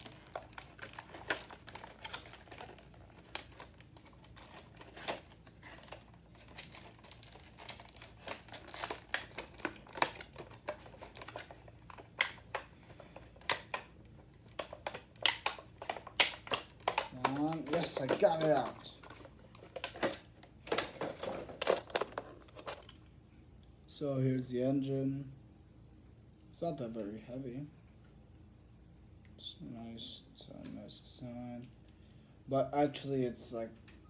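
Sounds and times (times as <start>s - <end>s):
packaging clicking and crinkling: 0.0s - 23.0s.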